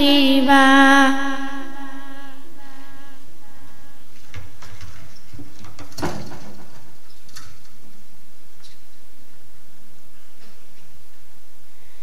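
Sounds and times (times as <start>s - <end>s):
clicks and knocks: 4.2s - 7.8s.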